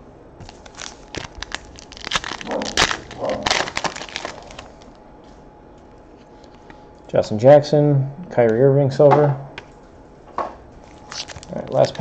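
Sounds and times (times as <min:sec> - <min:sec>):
foil wrapper crinkling: 0:00.4 - 0:05.0, 0:10.8 - 0:12.0.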